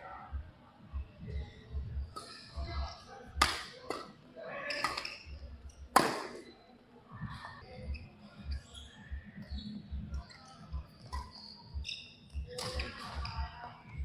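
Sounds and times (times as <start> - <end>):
court shoes squeaking: 1.2 - 14.0.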